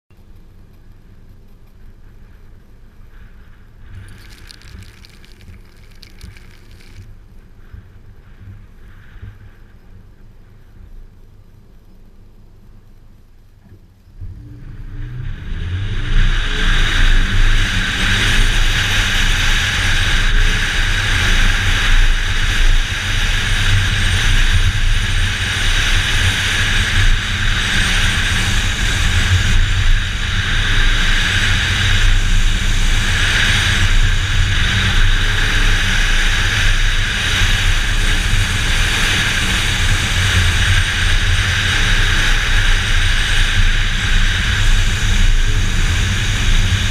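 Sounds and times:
tyres on loose dirt: 3.9 - 7.2
wind rush: 14.2 - 46.9.

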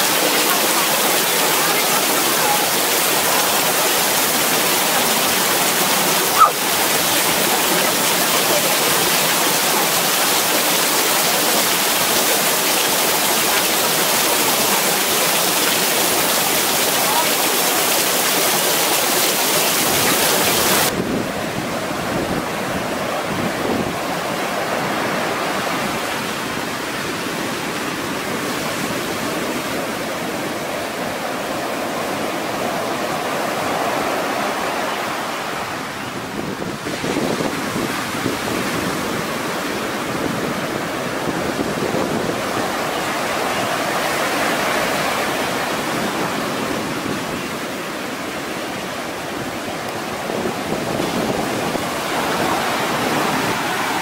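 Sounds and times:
heavy rain hissing: 0.0 - 21.1
surf breaking on a beach: 0.0 - 54.0.

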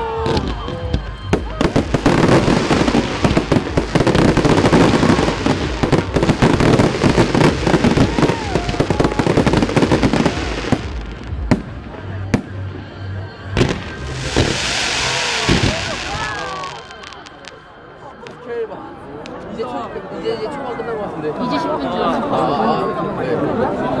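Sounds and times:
fireworks crackling and banging: 0.0 - 12.8, 13.6 - 18.5.

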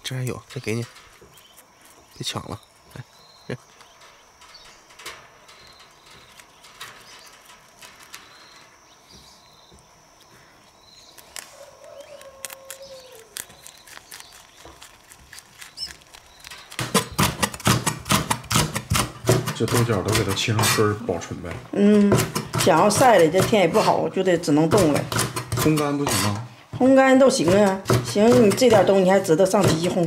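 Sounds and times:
rabbits chewing leafy greens: 0.0 - 30.0
drawn-out falling call: 11.4 - 13.4.

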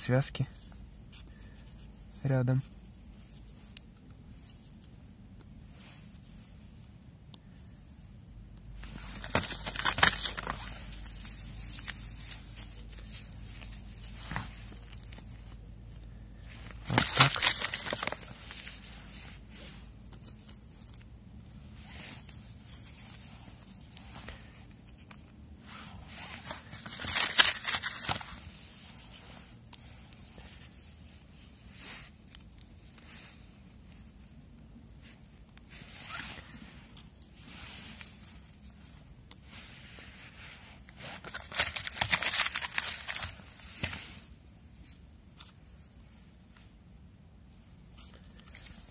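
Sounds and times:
firecrackers tearing and crinkling: 9.0 - 15.4, 16.8 - 18.8, 26.5 - 28.4, 41.2 - 43.6.

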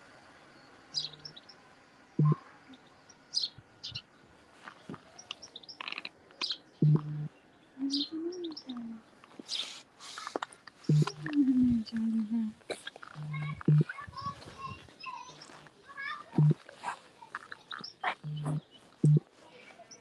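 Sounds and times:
birds chirping and singing: 1.0 - 1.6, 2.2 - 4.2, 4.8 - 9.8, 13.0 - 15.7, 17.6 - 19.2
loud low thumps: 2.2 - 2.4, 6.8 - 7.2, 10.9 - 11.3, 13.2 - 13.9, 18.3 - 19.2.

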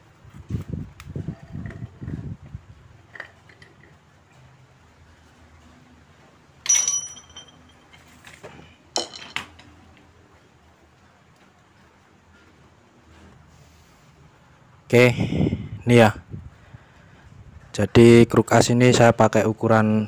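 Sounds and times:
metal parts clinking: 6.6 - 9.7.

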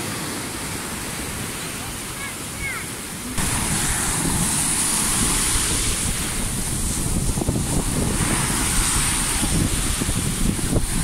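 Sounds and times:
surf breaking on beach: 0.0 - 11.0
wind buffeting microphone: 3.2 - 11.0.

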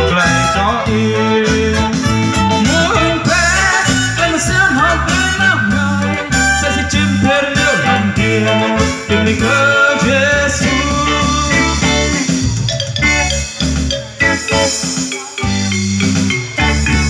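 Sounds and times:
man singing into a microphone: 0.0 - 12.3
live band music through speakers: 0.0 - 17.0.

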